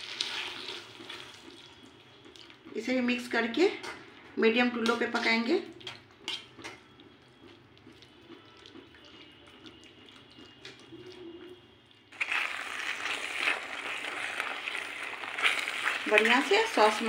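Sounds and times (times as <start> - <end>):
sauce sizzling and bubbling: 0.0 - 2.2, 12.1 - 17.0
spatula scraping pan: 12.2 - 17.0.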